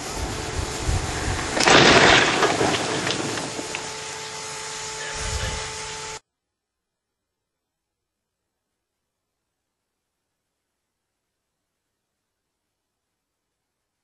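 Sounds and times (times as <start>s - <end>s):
steady rushing noise: 0.0s - 6.2s
car crashing into guardrail: 1.6s - 3.9s.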